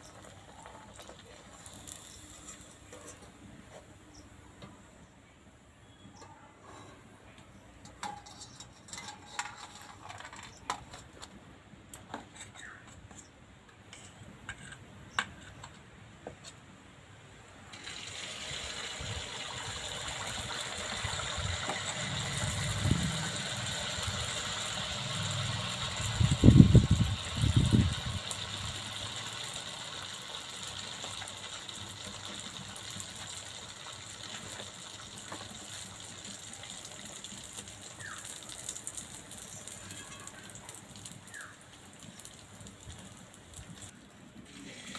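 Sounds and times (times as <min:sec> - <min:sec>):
oil sizzling: 0:00.0 - 0:04.2, 0:17.7 - 0:44.9.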